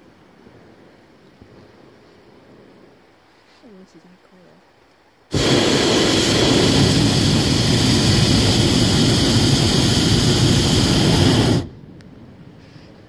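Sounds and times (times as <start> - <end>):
propane burner blast: 5.3 - 11.8.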